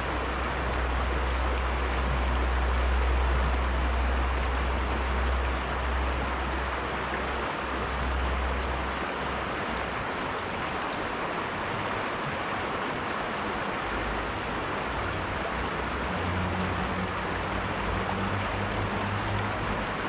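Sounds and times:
river water over rocks: 0.0 - 20.0.

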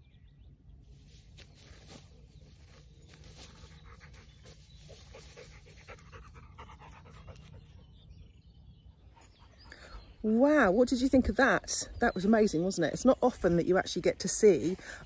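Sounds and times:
dog panting: 3.6 - 7.8.

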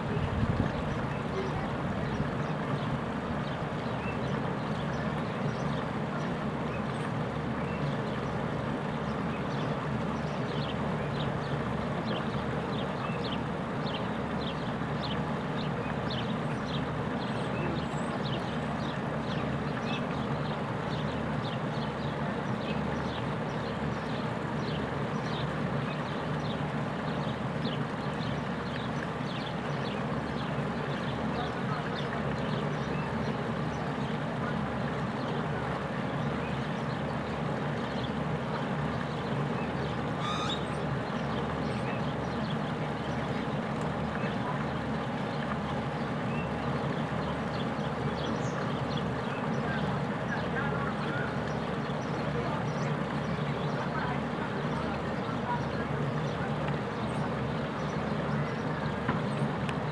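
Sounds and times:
waterfall splashing into pond: 0.0 - 59.9.

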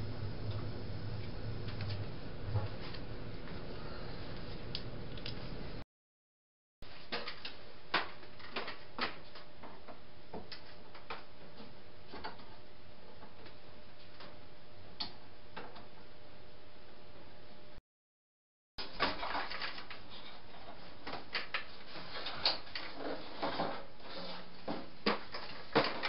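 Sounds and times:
faint steady hum: 0.0 - 5.8.

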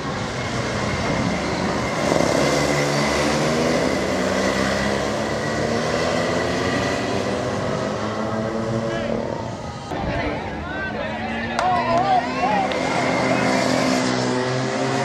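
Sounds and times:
racing engine revving: 0.0 - 9.9, 11.3 - 15.0.

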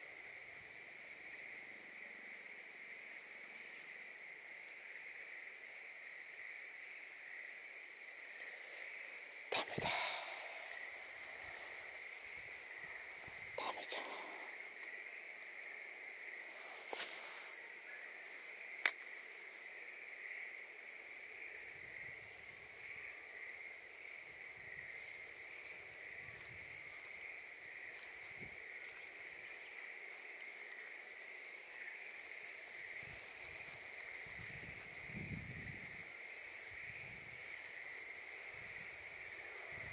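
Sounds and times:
high-pitched insect trill: 5.3 - 19.6, 21.6 - 39.9
faint bird chirps: 25.4 - 30.0, 33.0 - 35.7.

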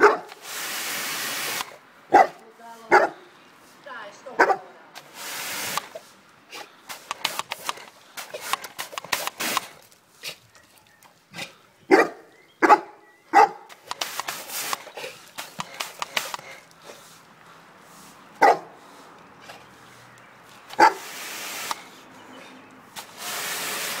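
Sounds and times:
dog barking: 0.0 - 0.3, 2.1 - 3.2, 4.4 - 4.7, 11.9 - 13.7, 18.4 - 18.8, 20.8 - 21.0
water spray hissing: 0.1 - 1.8, 5.0 - 10.4, 13.7 - 22.2, 22.8 - 24.0.

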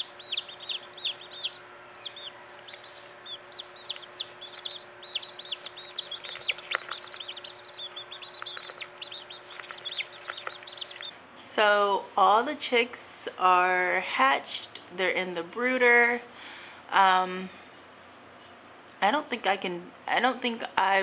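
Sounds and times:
chicks peeping: 0.0 - 11.2.

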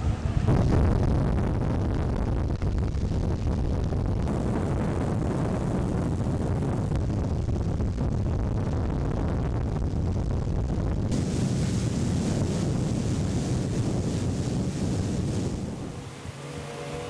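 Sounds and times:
wind buffeting microphone: 0.0 - 17.0
rushing water: 11.1 - 17.0.

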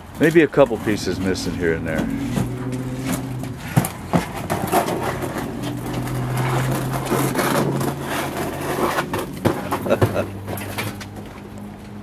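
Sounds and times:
low motor hum: 0.7 - 11.6.

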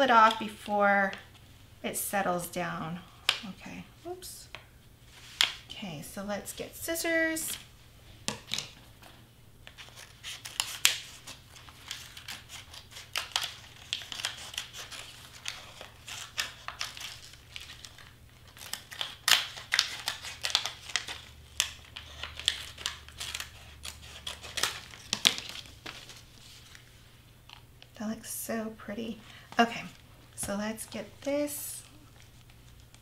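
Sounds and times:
vinyl sheet crinkling and peeling: 9.6 - 27.6, 29.6 - 33.0.

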